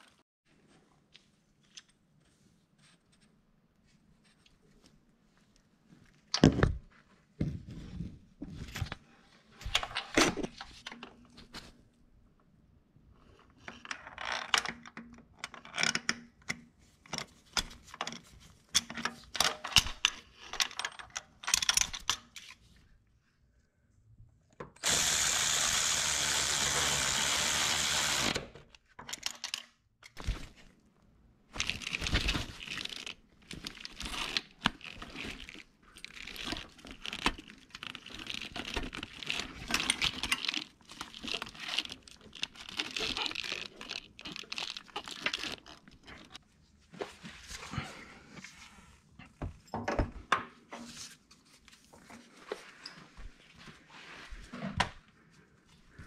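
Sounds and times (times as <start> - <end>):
power tool running: 24.8 - 28.6.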